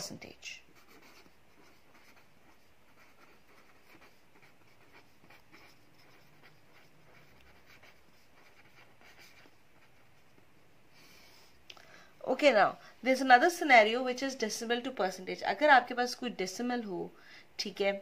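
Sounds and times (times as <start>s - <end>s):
pen scratching on paper: 0.7s - 10.5s.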